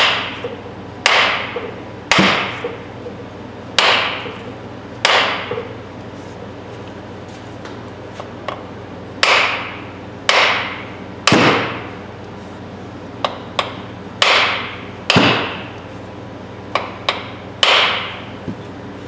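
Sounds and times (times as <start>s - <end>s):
hammer striking wooden handle: 1.0s - 2.8s, 3.8s - 4.3s, 5.0s - 5.7s, 9.2s - 11.8s, 13.2s - 15.7s, 16.8s - 18.2s.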